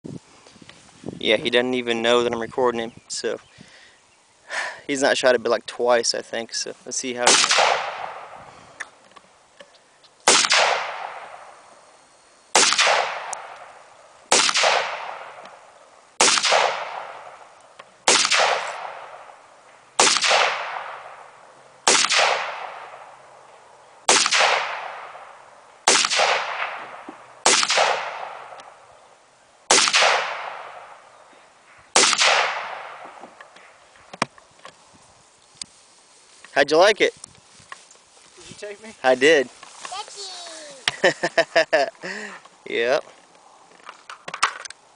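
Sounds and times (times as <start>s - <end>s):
rifle shots echoing: 7.2s - 8.4s, 10.2s - 11.6s, 12.5s - 19.4s, 20.0s - 23.2s, 24.1s - 28.8s, 29.6s - 31.1s, 32.0s - 33.2s.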